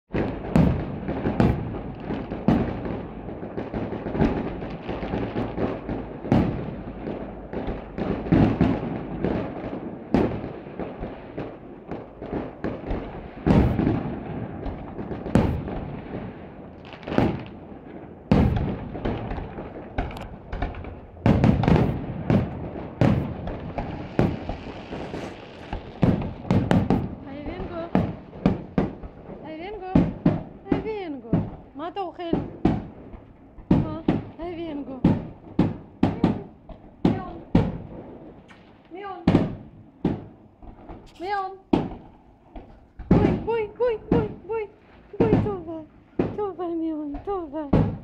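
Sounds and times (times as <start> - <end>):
firework shell bursts: 21.5 - 27.1.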